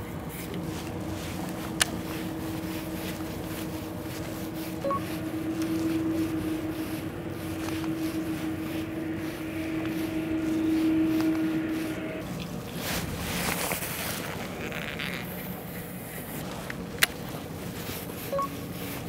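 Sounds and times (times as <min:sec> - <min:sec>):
boat engine idling: 0:00.0 - 0:19.0
short beep: 0:04.8 - 0:06.3.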